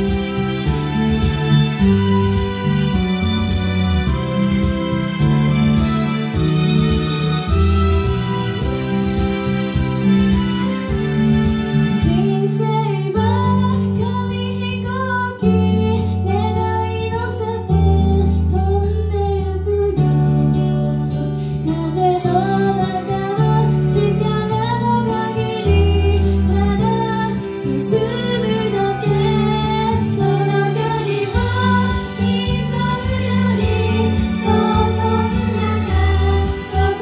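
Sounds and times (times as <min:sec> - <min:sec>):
backing track with bass and drums: 0:00.0 - 0:12.7, 0:25.7 - 0:37.0
women singing pop song: 0:12.0 - 0:20.6, 0:21.6 - 0:37.0.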